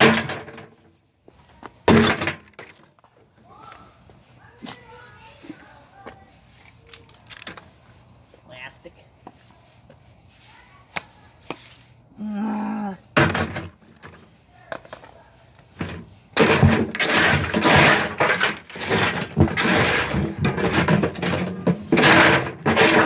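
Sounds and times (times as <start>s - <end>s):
pot shards clattering in wheelbarrow: 16.4s - 23.0s.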